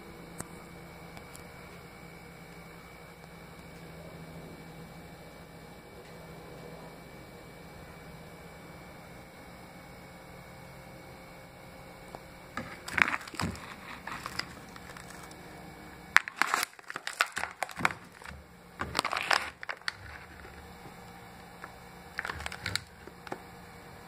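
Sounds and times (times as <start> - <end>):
plastic bag crinkling: 12.6 - 23.4.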